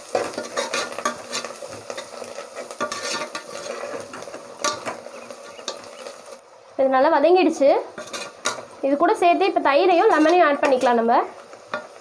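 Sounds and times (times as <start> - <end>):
ladle scraping a pot: 0.0 - 6.2, 7.9 - 8.7
frying hiss: 0.0 - 12.0.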